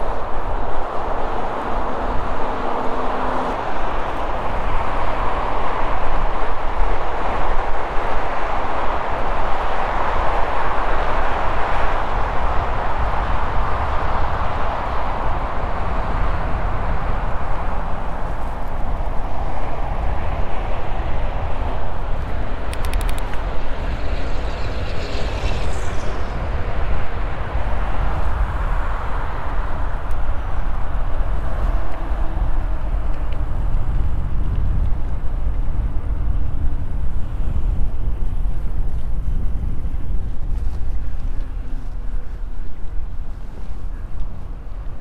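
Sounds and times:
wind buffeting microphone: 0:00.0 - 0:45.0
falling whine: 0:23.4 - 0:33.9.

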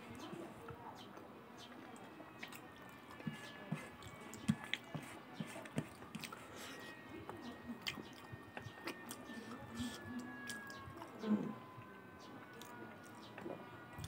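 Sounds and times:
chewing and wet mouth smacks: 0:06.1 - 0:06.4.

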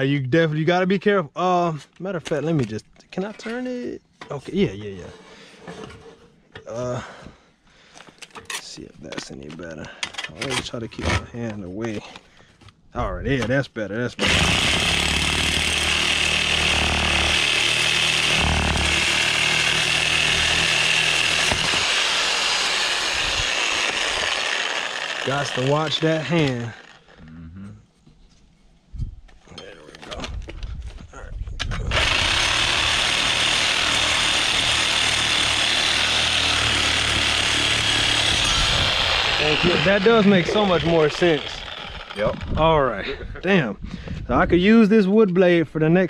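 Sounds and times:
power saw cutting metal pipe: 0:14.2 - 0:27.2, 0:31.8 - 0:42.5.

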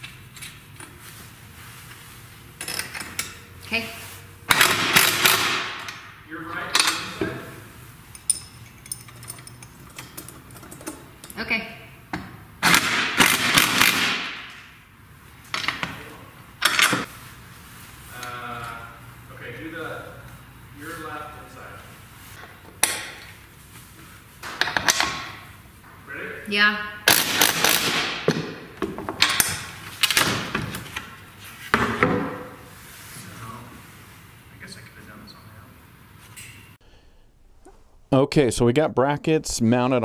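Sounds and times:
hand tool clanking on steel: 0:08.1 - 0:11.4.

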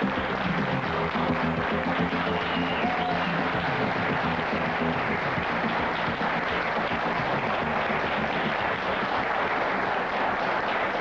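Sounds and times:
theme music: 0:00.0 - 0:08.6
studio audience applauding: 0:00.0 - 0:11.0.

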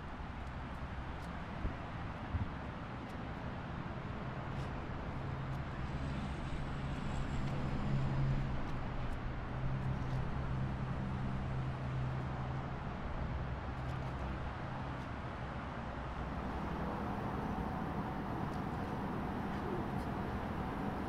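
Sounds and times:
outdoor background noise: 0:00.0 - 0:21.0
ship engine drone: 0:16.1 - 0:21.0.

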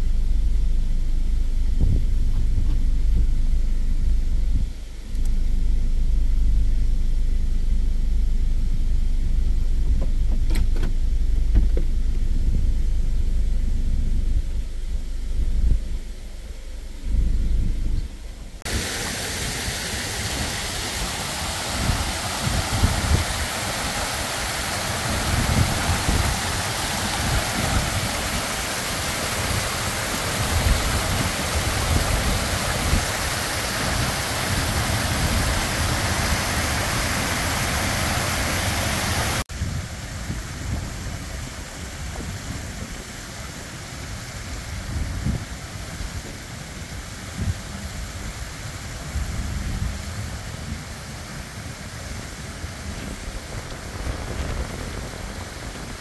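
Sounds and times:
wind rumbling on microphone: 0:00.0 - 0:56.0
water rushing down rock ledges: 0:18.7 - 0:39.5.

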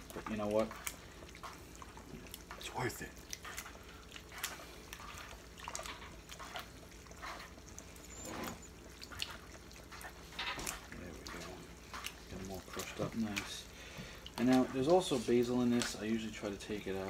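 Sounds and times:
juice dripping: 0:00.0 - 0:17.0
tomatoes squelching by hand: 0:14.3 - 0:16.1.

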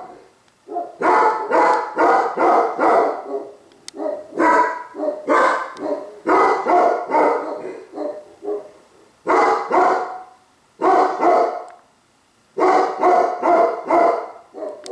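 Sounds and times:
dog barking deeply: 0:00.0 - 0:11.7, 0:12.6 - 0:14.9.

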